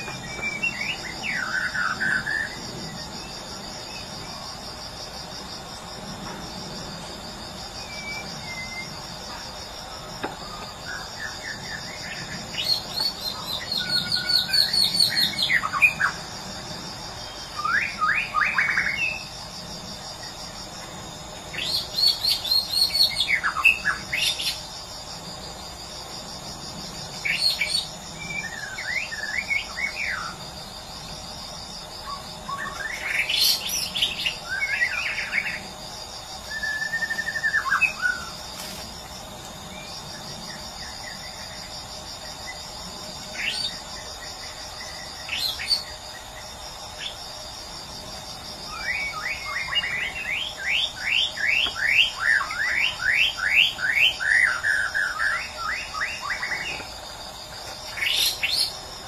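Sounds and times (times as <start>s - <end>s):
bird singing whistles and trills: 0.0s - 2.6s, 7.8s - 8.9s, 36.5s - 38.3s
insect trill: 0.0s - 59.0s.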